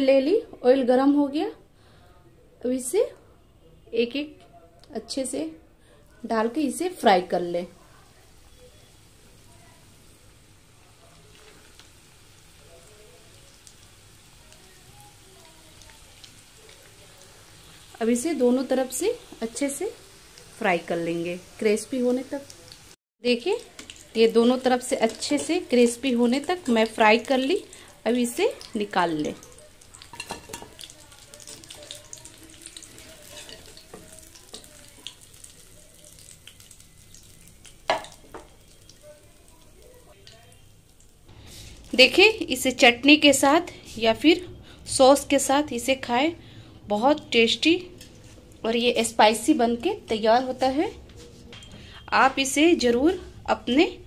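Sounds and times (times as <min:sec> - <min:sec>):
oil sizzling and crackling: 0:06.5 - 0:46.1, 0:47.2 - 0:50.9.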